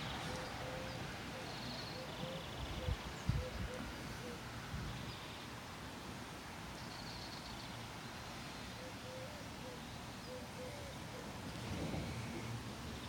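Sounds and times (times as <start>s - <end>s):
distant birds calling: 0.0s - 5.5s
steady background hiss: 0.0s - 13.0s.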